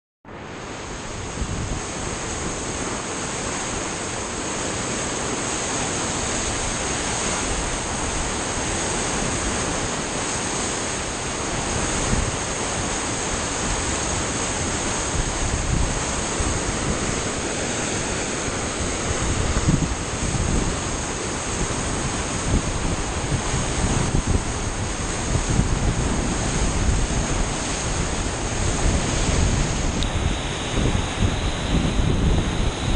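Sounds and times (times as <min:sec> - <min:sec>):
river rushing: 0:00.3 - 0:32.9
wind buffeting microphone: 0:00.8 - 0:03.1, 0:05.9 - 0:32.9.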